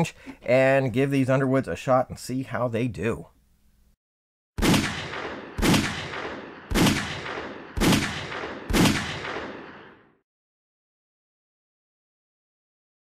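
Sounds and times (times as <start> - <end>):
pistol shots: 4.6 - 10.1.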